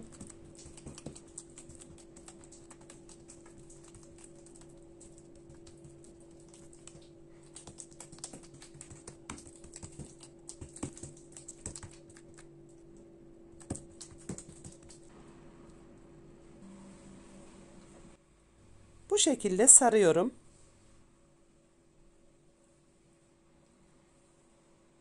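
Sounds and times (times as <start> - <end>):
hands patting sticky dough: 0.0 - 12.5, 13.5 - 15.1
faint hum: 0.0 - 25.0.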